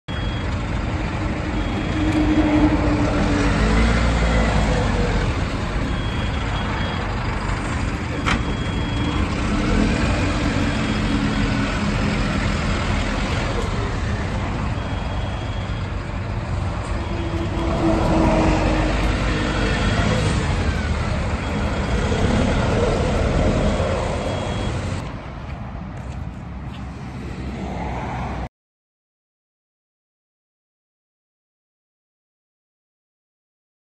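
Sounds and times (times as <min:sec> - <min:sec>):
forklift engine revving: 0:00.1 - 0:25.1.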